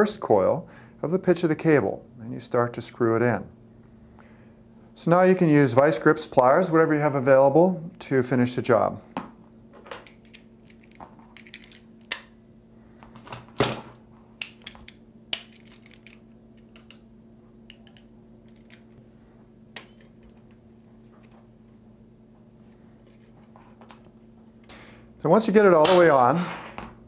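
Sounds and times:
locking pliers clinking on metal: 10.0 - 12.3, 14.4 - 17.0.

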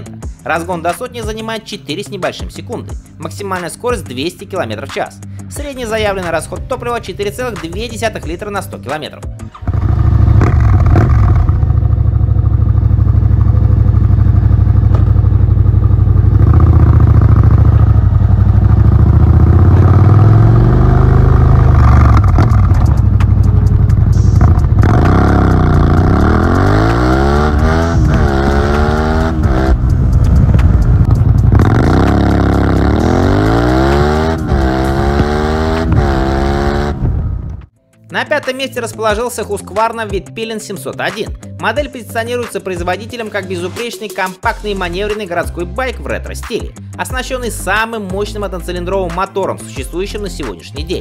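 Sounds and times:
motorcycle engine accelerating: 9.5 - 37.7.

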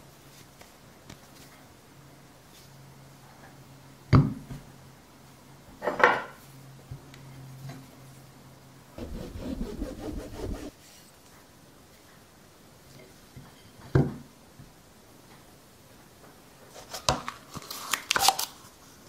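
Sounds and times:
clay scraping on plate: 9.0 - 10.7.

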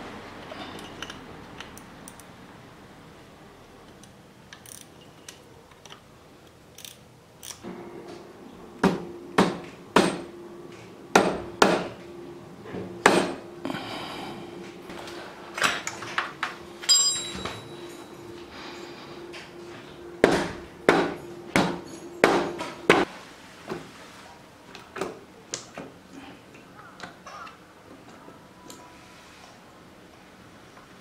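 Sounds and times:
hammer knocking on metal: 11.1 - 11.9, 20.2 - 23.0.

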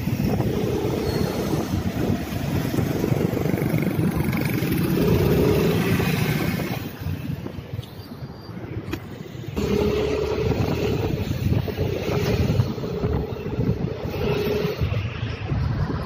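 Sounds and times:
wind rushing over microphone: 0.0 - 16.0
motorcycle engine running: 9.6 - 14.7.

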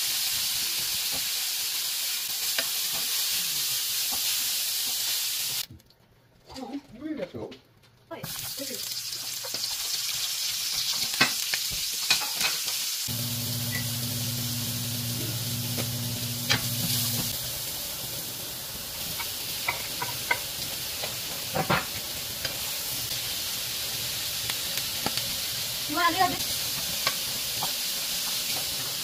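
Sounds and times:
onions sizzling in oil: 0.0 - 5.7, 8.2 - 29.0
low steady hum: 13.1 - 17.3
spatula knocking and scraping pan: 19.2 - 22.0.

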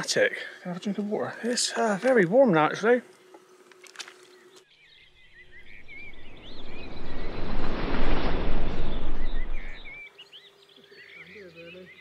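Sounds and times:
small birds chirping: 0.0 - 12.0
rushing noise: 5.6 - 10.0.

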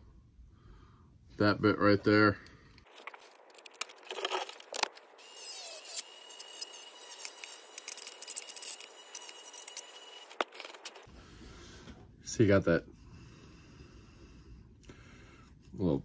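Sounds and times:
rotary tool whining: 2.9 - 11.1.

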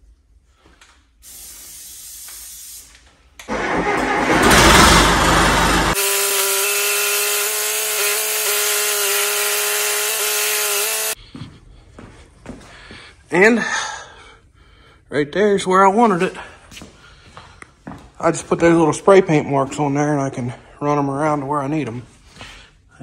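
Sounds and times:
diesel engine cranking and running: 3.5 - 11.2.

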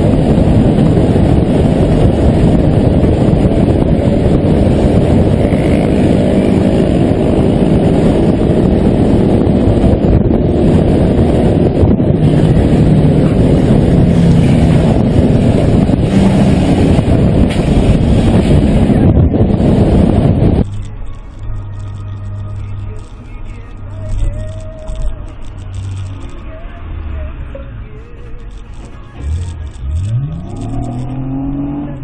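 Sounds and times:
wind buffeting microphone: 0.0 - 20.8
motorcycle engines rumbling: 0.0 - 32.0.

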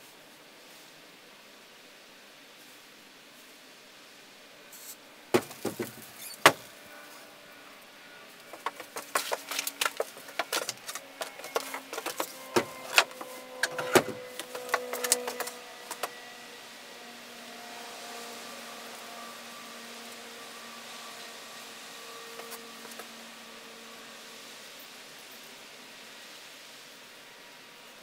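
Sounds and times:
sharp knocks: 5.4 - 6.7, 8.6 - 16.1.

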